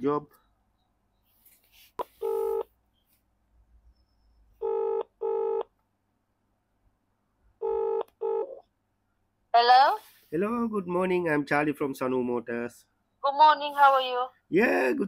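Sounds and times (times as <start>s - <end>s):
phone ringback tone: 2.2s - 2.7s, 4.6s - 5.7s, 7.6s - 8.6s.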